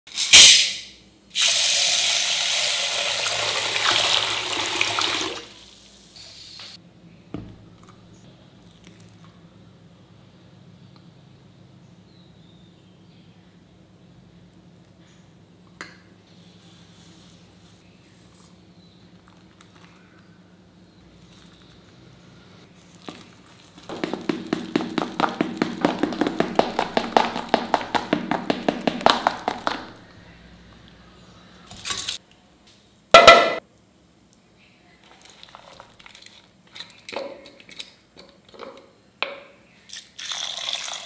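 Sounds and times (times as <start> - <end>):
spoon beating batter in steel bowl: 23.9 - 29.9.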